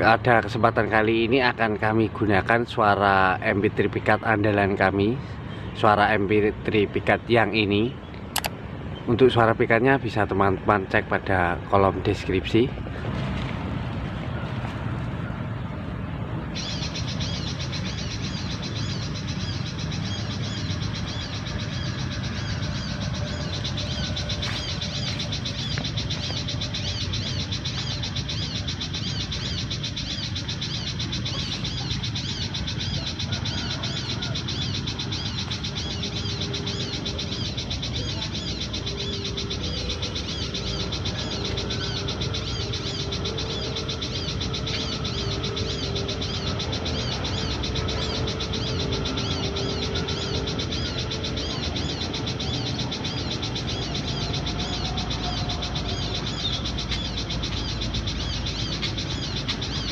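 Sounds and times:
bird call from a speaker: 16.5s - 59.9s.

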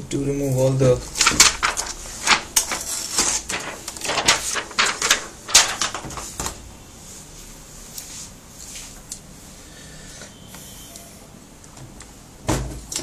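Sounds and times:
plastic sheet crinkling: 1.0s - 6.6s.

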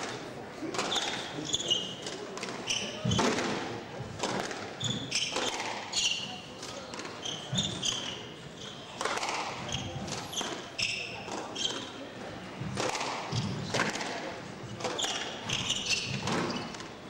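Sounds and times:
sneakers squeaking on wooden floor: 0.8s - 3.4s, 4.8s - 12.7s, 13.3s - 13.8s, 14.6s - 17.0s
squash ball hits: 2.4s - 4.7s, 9.0s - 10.6s, 12.6s - 16.8s.

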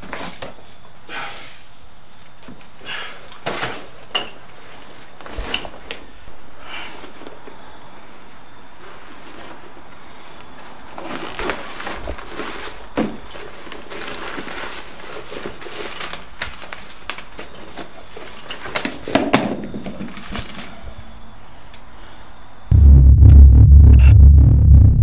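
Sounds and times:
rustling and clattering from backpack: 2.4s - 6.2s, 8.8s - 20.9s.

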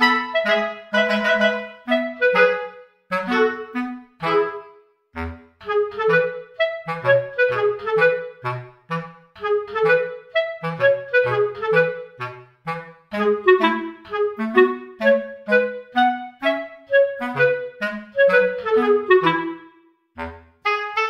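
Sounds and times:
instrumental music with plucked notes: 0.0s - 21.0s.

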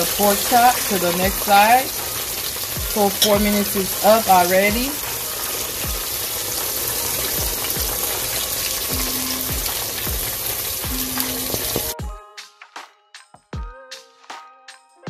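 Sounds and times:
meat deep-frying in hot oil: 0.0s - 12.0s
faint music beat: 0.1s - 15.0s.

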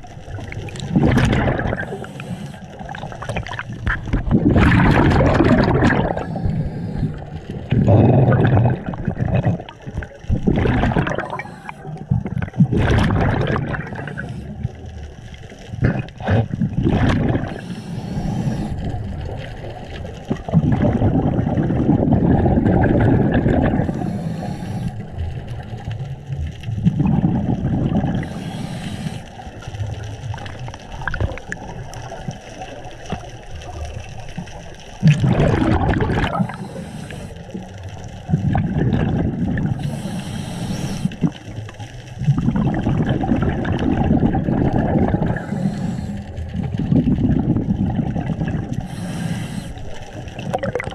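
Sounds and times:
exhaled bubbles rumbling: 0.0s - 50.9s
regulator inhalation hiss: 1.8s - 2.7s, 6.2s - 7.3s, 17.5s - 18.9s, 23.9s - 25.2s, 28.2s - 29.4s, 36.4s - 37.6s, 39.8s - 41.2s, 45.4s - 46.4s, 48.8s - 50.1s.

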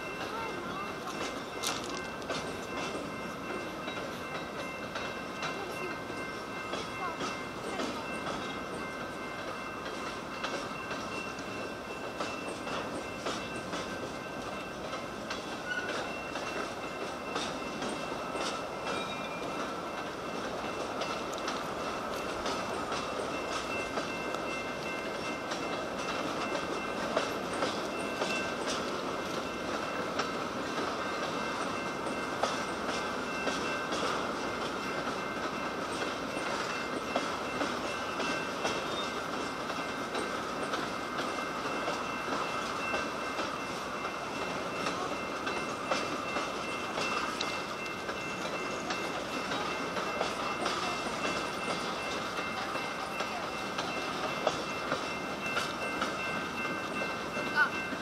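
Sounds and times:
train wheels rumbling on rails: 0.0s - 58.0s
wheels clicking over rail joints: 0.0s - 58.0s.

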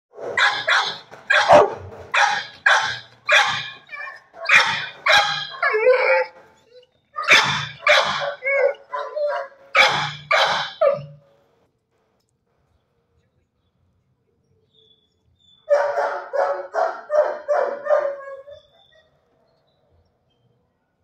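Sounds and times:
dog barking: 0.2s - 5.9s, 7.2s - 11.2s, 15.7s - 18.6s
dog whining: 0.3s - 11.2s.

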